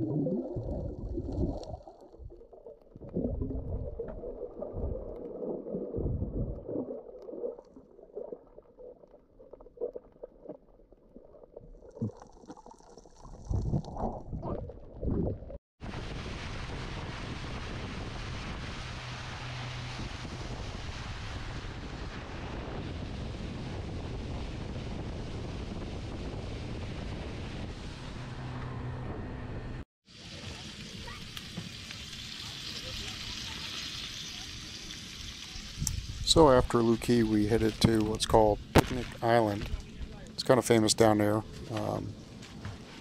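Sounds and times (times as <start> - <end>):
water gurgles and knocks: 0.0 - 18.6, 37.6 - 39.9
wind noise on microphone: 13.5 - 29.0, 35.7 - 40.2.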